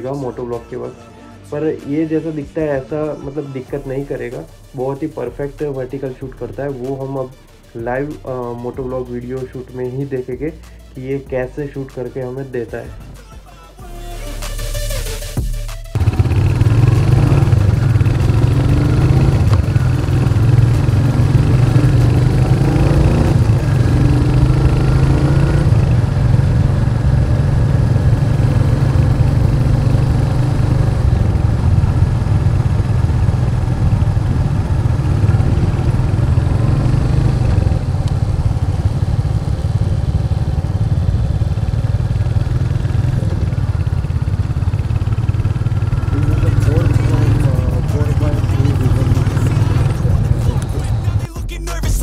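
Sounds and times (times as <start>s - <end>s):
motorcycle engine droning: 15.9s - 52.0s.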